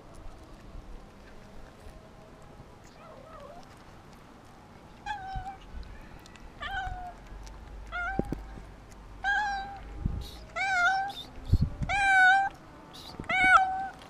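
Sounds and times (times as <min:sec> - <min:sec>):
cat meowing: 0:05.0 - 0:07.2, 0:07.9 - 0:08.5, 0:09.2 - 0:09.8, 0:10.6 - 0:11.2, 0:11.9 - 0:12.5, 0:13.2 - 0:14.0.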